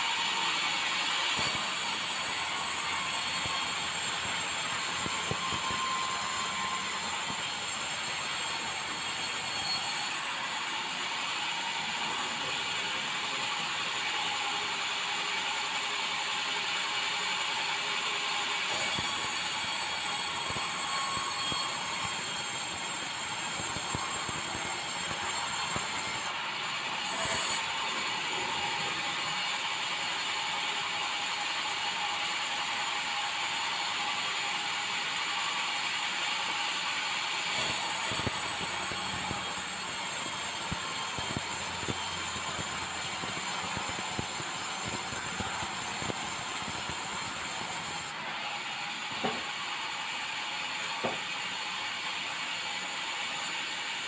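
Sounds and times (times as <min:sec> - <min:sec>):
band saw cutting a log: 0:01.4 - 0:11.2, 0:18.7 - 0:26.4, 0:27.0 - 0:27.8, 0:37.5 - 0:48.2.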